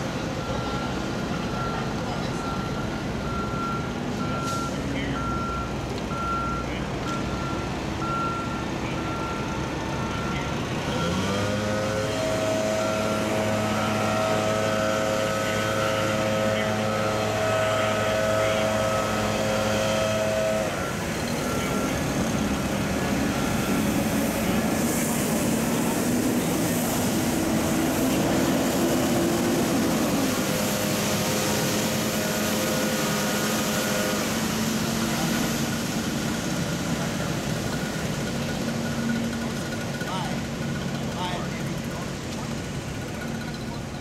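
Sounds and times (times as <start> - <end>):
diesel truck engines running: 0.0 - 44.0
broad rushing noise: 10.8 - 44.0.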